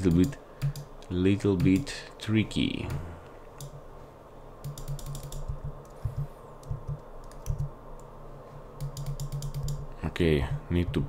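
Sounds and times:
keyboard and mouse clicks: 0.0 - 1.9, 3.6 - 3.8, 4.6 - 8.1, 8.8 - 9.8
low steady hum: 0.0 - 11.0.

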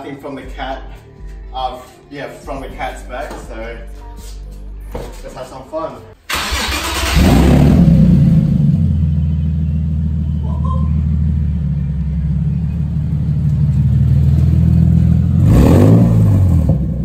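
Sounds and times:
engine revving: 6.3 - 17.0
loud car engine idling: 7.0 - 15.5.

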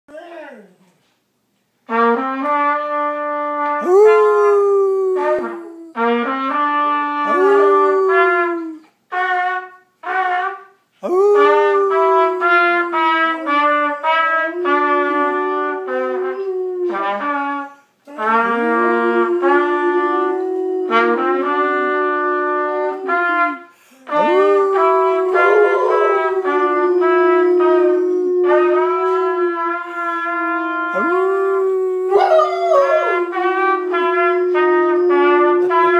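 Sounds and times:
dog howling: 3.8 - 6.1, 7.2 - 8.8, 11.0 - 17.3, 18.2 - 23.5, 24.1 - 29.8, 30.4 - 35.9.

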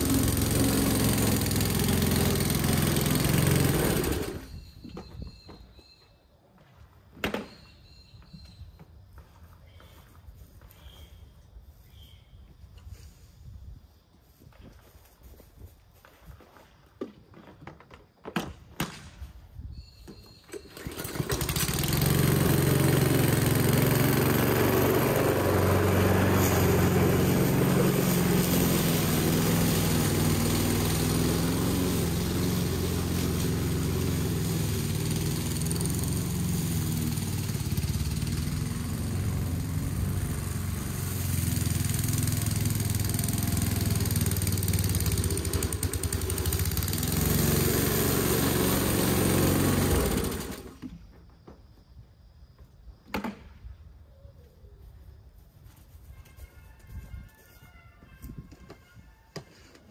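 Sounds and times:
lawn mower engine running: 0.0 - 4.8, 20.4 - 51.0.

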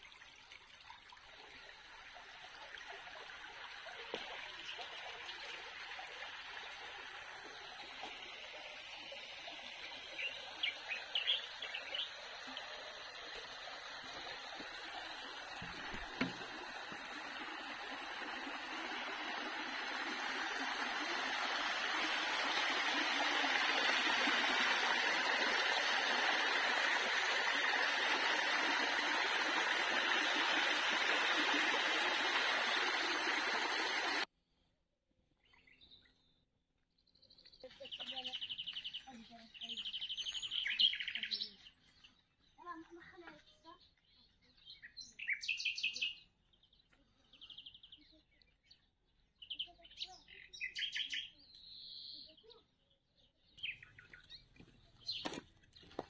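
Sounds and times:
water rushing in channel: 0.0 - 34.3
bird chirps: 10.2 - 12.2, 37.0 - 42.2, 43.4 - 56.0.

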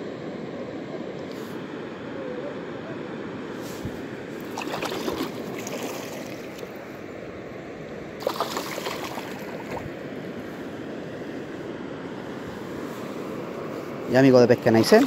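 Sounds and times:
river water running over stones: 4.4 - 6.8, 8.2 - 10.1, 14.2 - 15.0
water splashing: 4.4 - 6.8, 8.2 - 10.0, 14.6 - 15.0.

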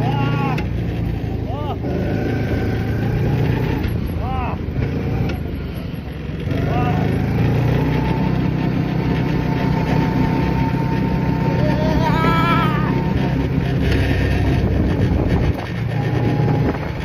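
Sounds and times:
road and engine rumble: 0.0 - 17.0
wind rushing over microphone: 12.1 - 17.0.

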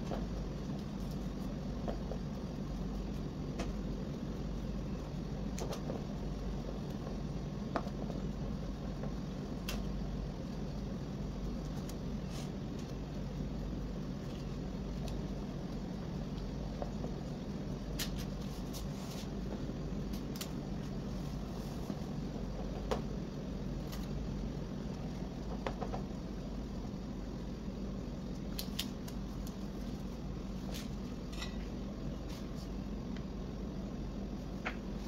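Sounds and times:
faint clicks and taps: 0.0 - 10.7, 24.9 - 26.2
low background hum: 0.0 - 35.0.

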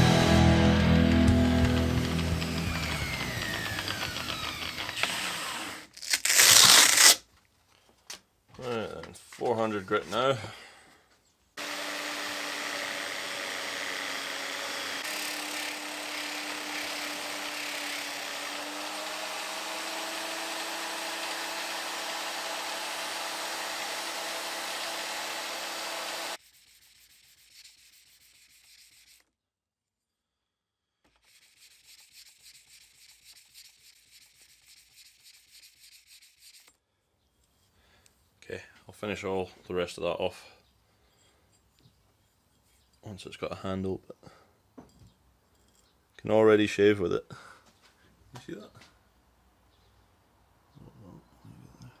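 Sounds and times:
angle grinder sharpening axe: 1.4 - 5.9.

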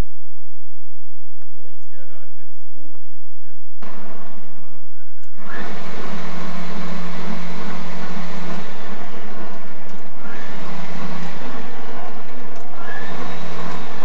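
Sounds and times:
kitchen machine motor whirring: 5.2 - 14.0.

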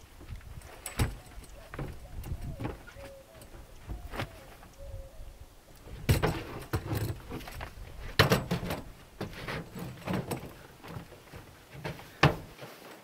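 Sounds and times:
chair and clothing handling noise: 5.9 - 13.0.

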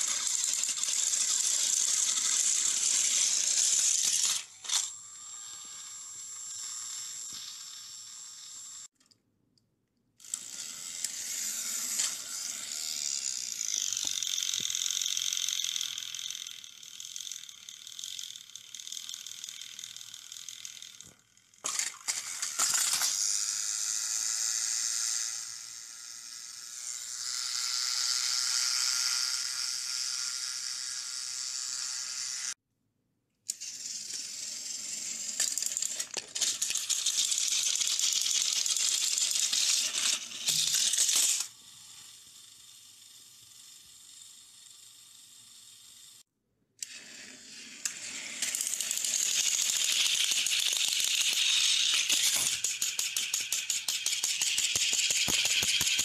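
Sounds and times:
plastic wheels rattling on track: 0.0 - 4.8, 13.7 - 23.3, 35.2 - 41.5, 47.9 - 56.0
toy train motors whirring: 0.0 - 9.2, 10.2 - 32.6, 33.5 - 56.0
plastic trains clattering: 20.9 - 23.3, 35.2 - 41.5, 47.8 - 56.0.

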